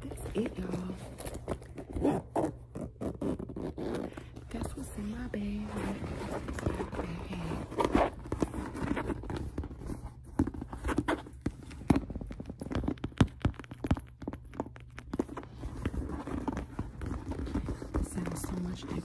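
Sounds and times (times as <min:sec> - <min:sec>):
bag rustling: 0:00.0 - 0:11.8.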